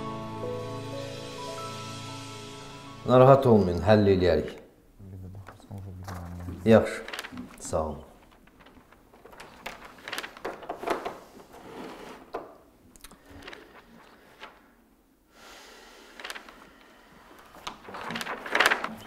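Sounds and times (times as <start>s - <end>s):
paper rustling: 5.3s - 12.6s, 13.2s - 14.8s, 16.0s - 19.0s.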